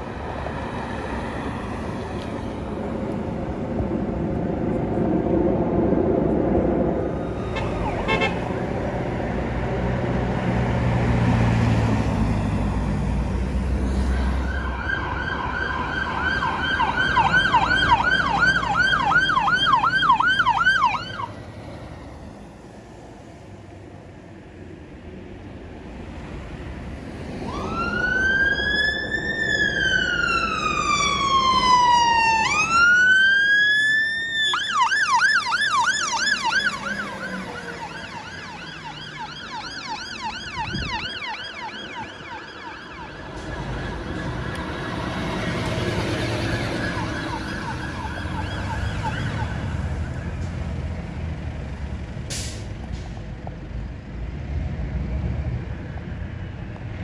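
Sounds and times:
heavy vehicle engine rumble: 0.0 - 15.6, 34.5 - 57.0
fire engine siren: 0.0 - 21.4, 27.1 - 51.1.

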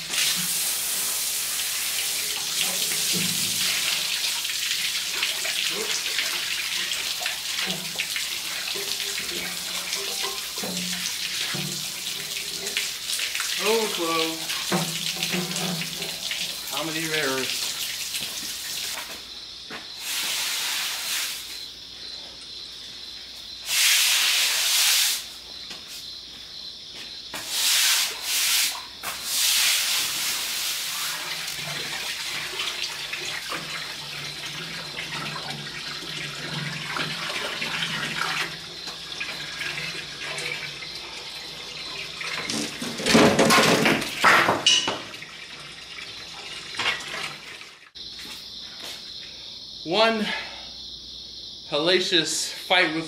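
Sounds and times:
water spraying from hose fitting: 0.0 - 19.2, 20.0 - 21.6, 23.6 - 25.3, 27.4 - 43.2.

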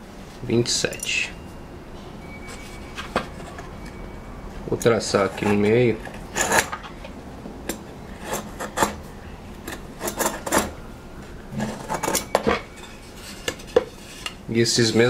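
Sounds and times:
metal tip scraping wood: 5.2 - 6.9.

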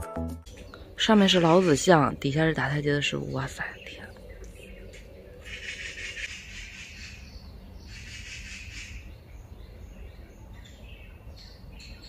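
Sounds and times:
high rapid chirping calls: 0.5 - 9.2.

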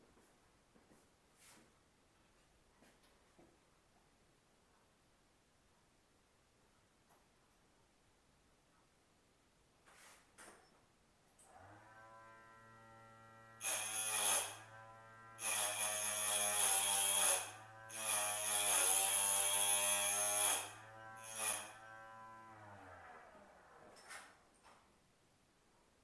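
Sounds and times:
electric motor whine: 11.5 - 23.8
metal ring grinding on wheel: 13.6 - 22.4.

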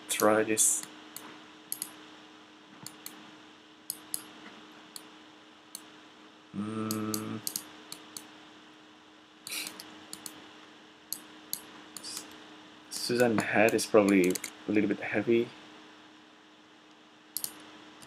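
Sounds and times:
faint electrical hum: 0.0 - 18.0
mouse and keyboard clicks: 0.2 - 1.9, 6.9 - 8.3, 9.5 - 10.4, 13.0 - 14.6, 17.4 - 17.6.

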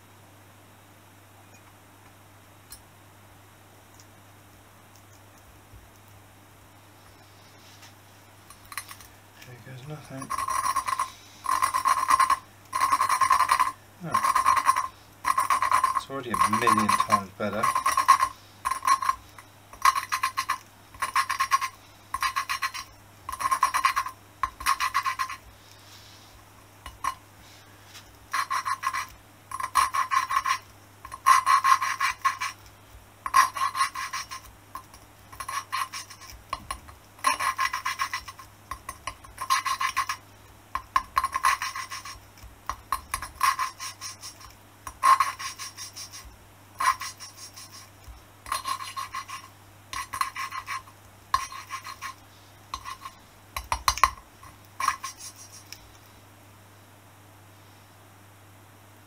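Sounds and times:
gritty rasp of valve lapping: 10.2 - 25.5, 28.3 - 32.6, 33.2 - 40.2, 43.1 - 52.2.

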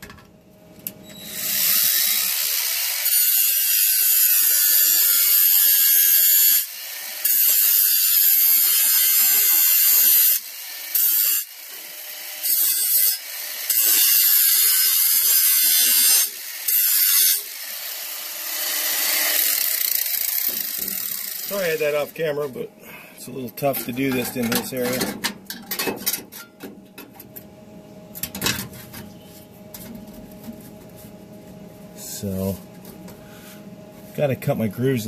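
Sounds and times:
grinder on sheet metal: 1.1 - 22.2.

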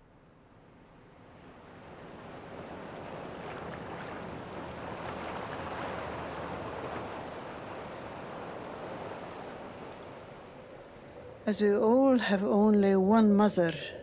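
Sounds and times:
water rushing: 1.3 - 12.2.

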